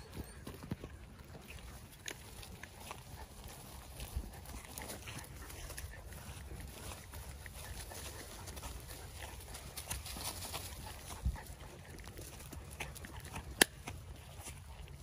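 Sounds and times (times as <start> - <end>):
footsteps on leaf-strewn dirt: 0.0 - 15.0.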